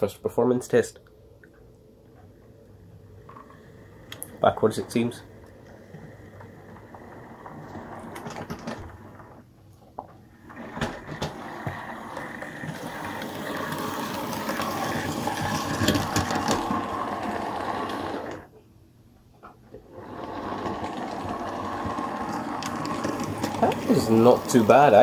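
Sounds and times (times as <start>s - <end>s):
model train motor whirring: 10.4s - 18.5s, 19.9s - 25.0s.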